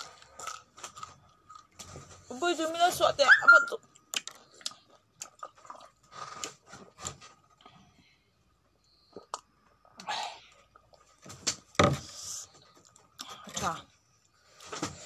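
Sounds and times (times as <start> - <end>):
chewing: 0.0 - 2.2, 3.9 - 7.7.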